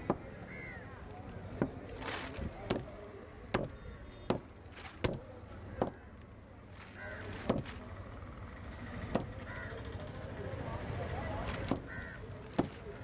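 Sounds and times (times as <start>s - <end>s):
crow cawing: 0.4s - 0.9s, 7.0s - 7.4s, 9.4s - 9.8s, 11.7s - 12.3s.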